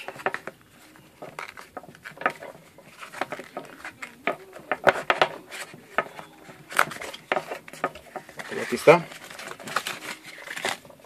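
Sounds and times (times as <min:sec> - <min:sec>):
paper and card rustling: 0:00.0 - 0:11.0
cardboard box tapping and clicking: 0:01.2 - 0:10.8.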